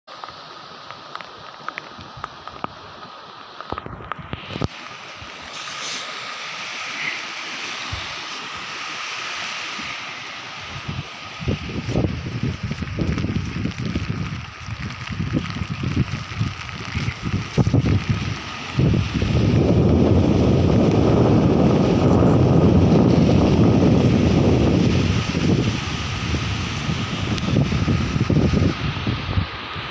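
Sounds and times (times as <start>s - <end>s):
flooded river rushing: 0.1s - 29.9s
wind buffeting microphone: 9.8s - 29.9s.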